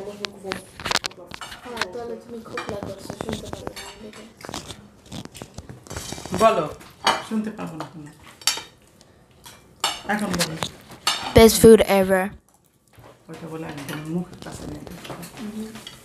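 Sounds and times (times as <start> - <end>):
cutlery scraping metal plates: 2.5 - 4.7, 8.2 - 8.8.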